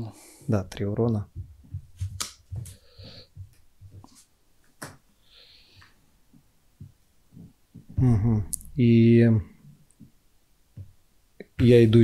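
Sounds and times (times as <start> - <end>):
playing cards clicking and tapping: 1.4 - 5.0.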